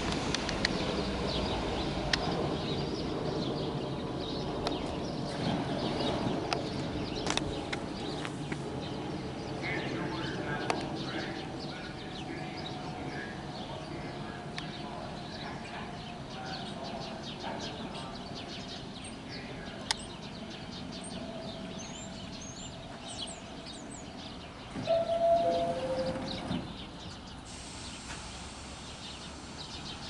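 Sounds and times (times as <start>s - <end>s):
subway car humming: 0.0s - 30.0s
small birds chirping: 0.4s - 30.0s.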